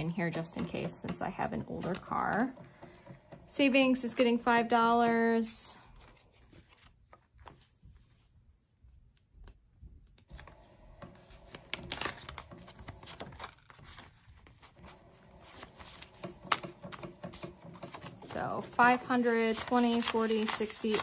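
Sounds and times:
banknotes rustling: 5.8s - 8.4s, 10.1s - 21.0s.

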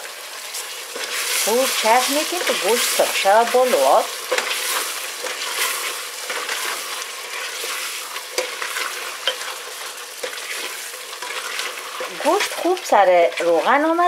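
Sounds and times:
meat sizzling in oil: 0.0s - 14.0s
spoon scraping and knocking pot: 8.4s - 12.7s.

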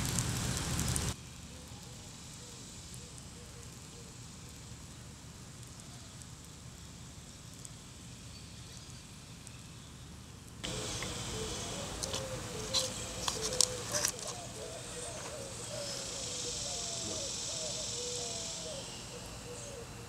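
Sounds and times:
crackling: 0.0s - 2.0s, 10.4s - 19.0s
low rumble and hiss: 0.0s - 20.0s
chirping: 10.6s - 20.0s
faint short calls: 10.7s - 20.0s.

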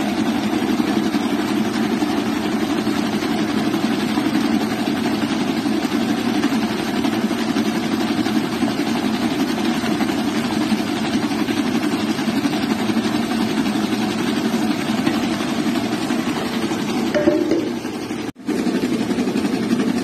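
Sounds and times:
electric stand mixer whisking: 0.0s - 20.0s.

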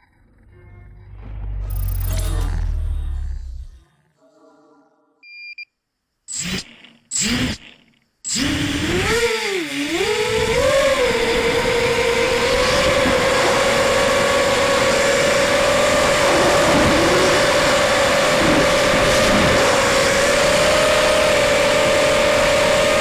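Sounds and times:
quadcopter motors whining: 6.3s - 23.0s.

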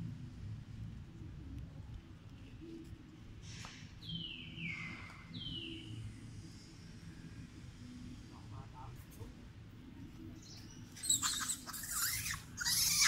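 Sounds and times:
low background rumble: 0.0s - 11.0s
bird whistling call: 11.0s - 13.0s.

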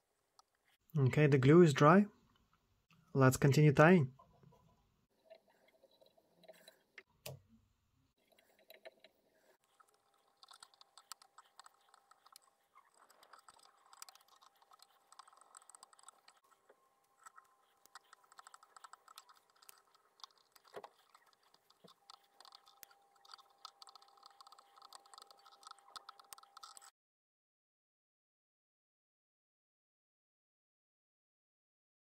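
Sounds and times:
thread wrapping clicks and rustles: 8.2s - 26.9s.

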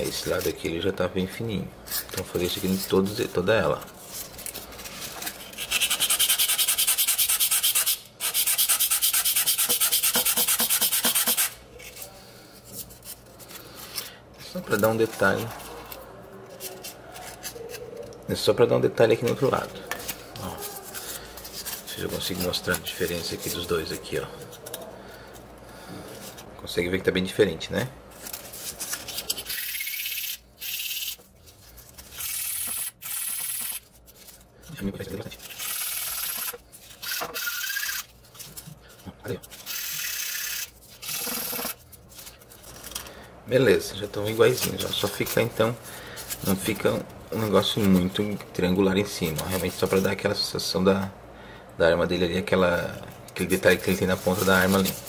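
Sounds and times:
foam rubbed on sanding block: 5.5s - 11.5s
faint handling sounds: 11.7s - 26.7s, 27.8s - 29.5s, 31.2s - 32.2s, 33.8s - 35.5s, 38.1s - 39.7s, 41.6s - 51.2s, 52.7s - 55.0s.

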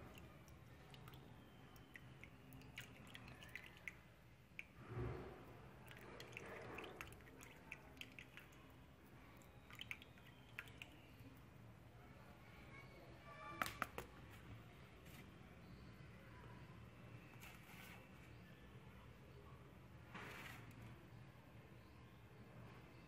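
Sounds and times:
water trickling and dripping: 0.0s - 11.8s.

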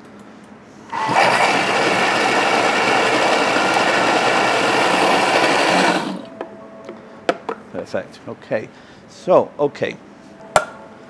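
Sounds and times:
food processor blending: 0.9s - 6.3s.

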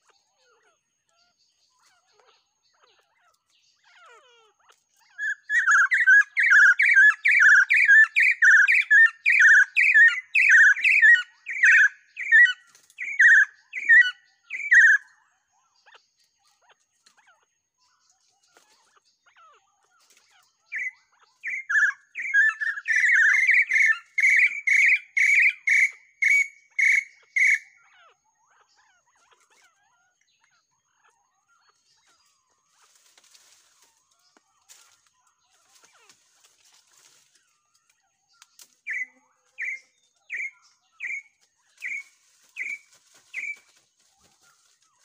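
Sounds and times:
partridge whistled calls: 5.0s - 17.1s, 18.0s - 45.0s.

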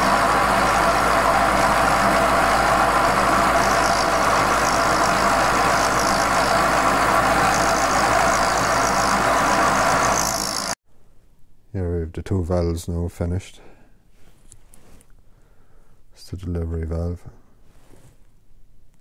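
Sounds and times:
milling machine cutting metal: 0.0s - 10.8s.

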